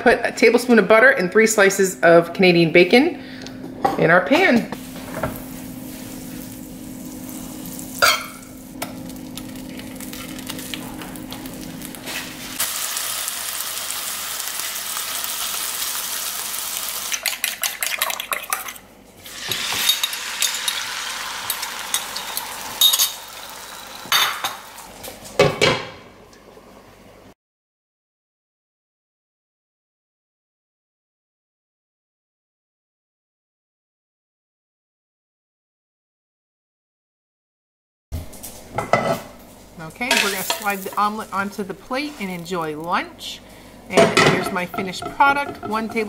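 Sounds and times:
bacon sizzling in butter: 4.8 - 25.3, 40.1 - 43.0
metal clinking on a pan: 22.8 - 23.2, 40.1 - 40.7.

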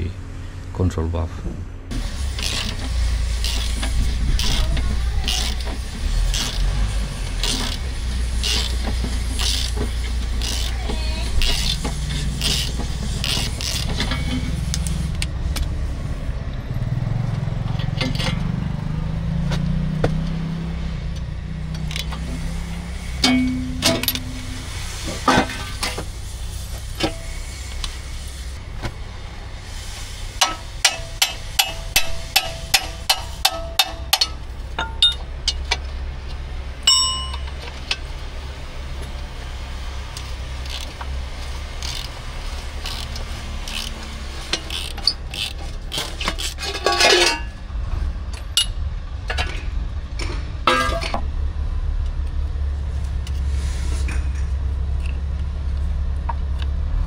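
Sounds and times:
steady low hum: 0.0 - 57.0
metal scraping: 1.9 - 16.4, 21.7 - 28.6, 40.6 - 48.7
ringing metal clink: 23.2 - 24.6, 30.4 - 35.2, 36.9 - 37.6.

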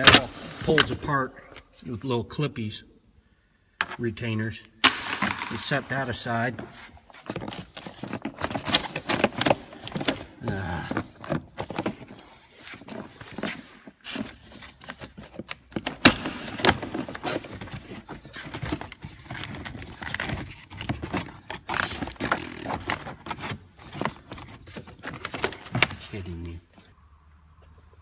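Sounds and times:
plastic trim scraping and rustling: 5.2 - 26.2.

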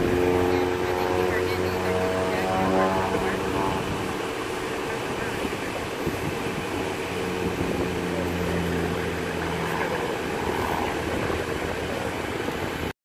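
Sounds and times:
engine drone: 0.0 - 13.0.

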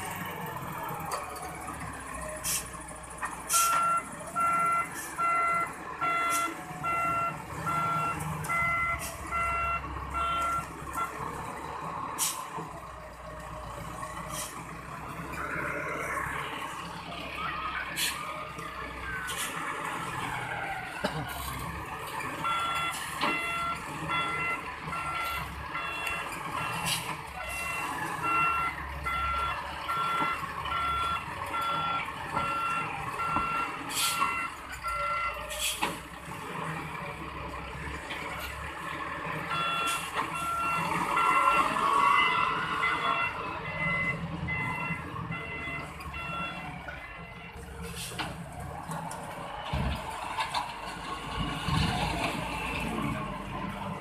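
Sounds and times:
diesel engine running: 0.0 - 54.0
reversing alarm beeping: 3.5 - 11.3, 22.4 - 35.6, 39.5 - 47.9.

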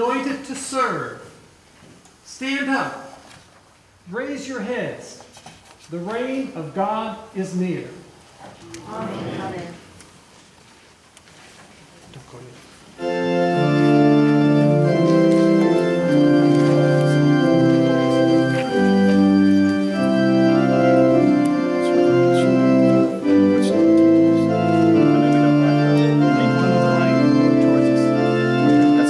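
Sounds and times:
church organ chords: 13.0 - 29.0.

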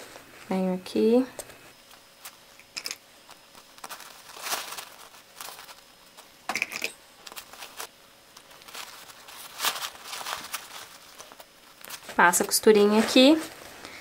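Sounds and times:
fabric rustling and crinkling: 3.3 - 6.3, 7.2 - 13.8.

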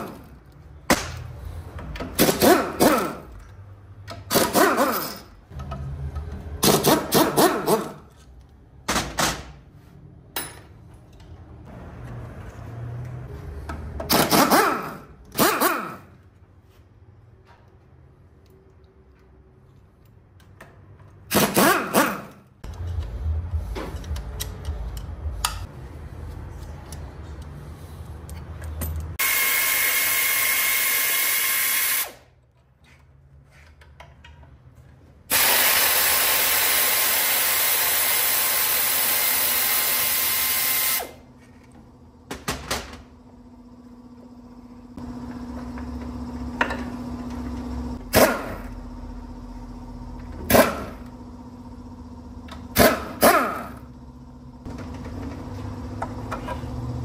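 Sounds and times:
power tool running: 29.2 - 32.2, 35.3 - 41.2.

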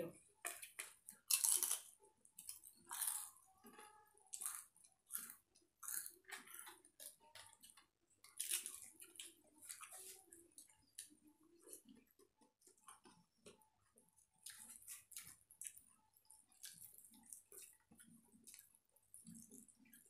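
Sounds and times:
crunching and chewing: 0.4 - 20.0
wet squishing of rice: 8.3 - 20.0.

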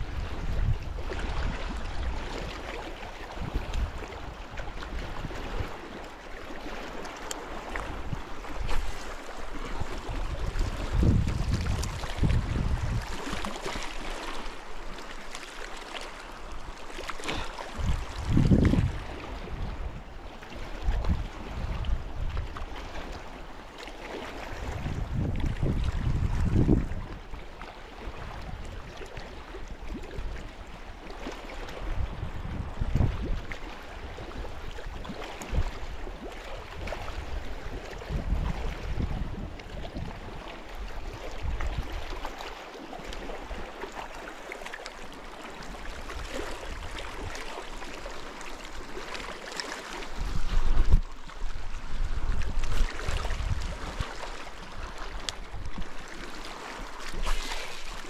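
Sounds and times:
wind buffeting microphone: 0.0 - 5.8, 7.6 - 13.5, 17.3 - 23.1, 24.5 - 27.2, 31.7 - 34.8, 36.6 - 42.2, 49.9 - 55.9
lake water lapping on shore: 0.0 - 58.0.

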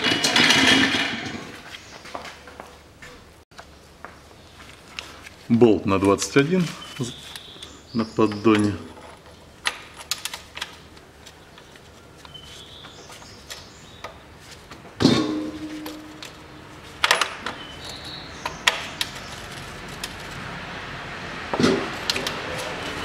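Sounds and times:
sharp metallic clack with ringing: 15.0 - 16.4.

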